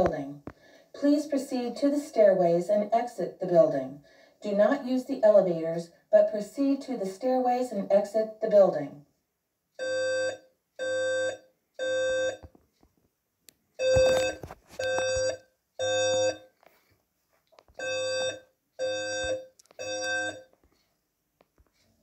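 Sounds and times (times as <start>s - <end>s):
voice announcements: 0.0s - 9.0s
fire alarm short beeps: 9.8s - 12.4s, 13.8s - 16.5s, 17.8s - 20.5s.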